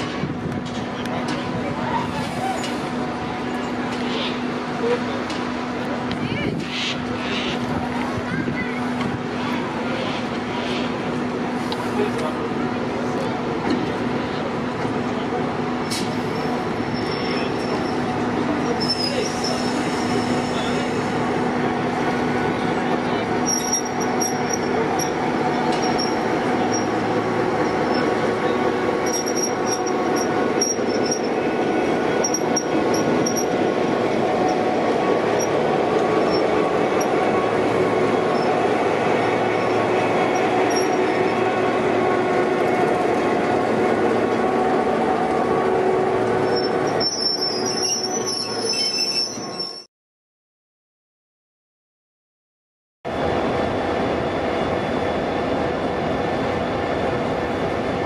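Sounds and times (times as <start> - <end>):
diesel locomotive rolling past: 0.0 - 49.9, 53.1 - 58.0
high-pitched squeaks: 46.5 - 49.9.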